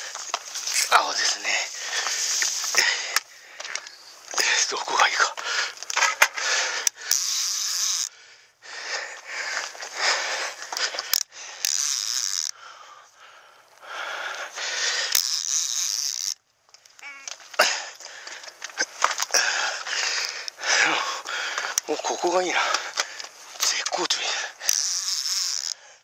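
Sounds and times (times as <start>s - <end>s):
person breathing hard: 1.6s - 4.1s, 5.3s - 7.3s, 8.1s - 11.8s, 12.5s - 15.3s, 17.6s - 24.9s, 25.6s - 26.0s
fast ticks: 13.7s - 26.0s.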